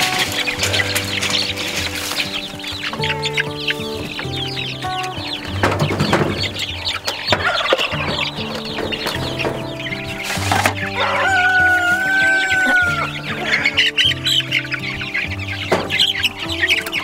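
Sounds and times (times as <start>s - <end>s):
background music: 0.0s - 17.0s
chicks peeping: 0.0s - 17.0s
adult chicken calling: 10.8s - 14.4s.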